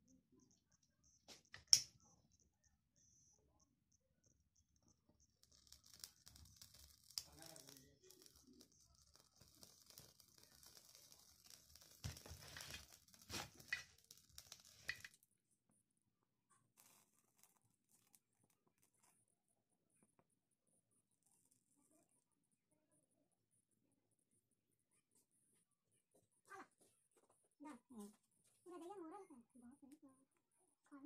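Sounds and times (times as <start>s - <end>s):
plastic cup crinkling while burning: 5.4s - 15.3s, 16.7s - 19.3s.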